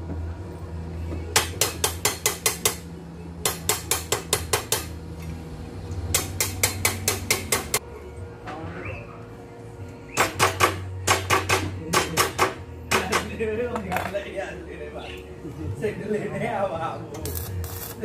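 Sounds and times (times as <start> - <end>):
hammer tapping on steel: 3.4 - 5.0, 6.1 - 7.8, 10.2 - 13.3.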